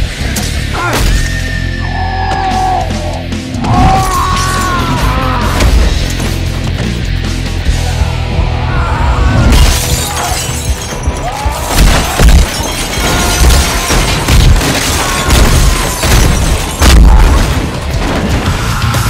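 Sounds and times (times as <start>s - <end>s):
action film music: 0.0s - 19.0s
fight and crash sound effects: 9.4s - 19.0s.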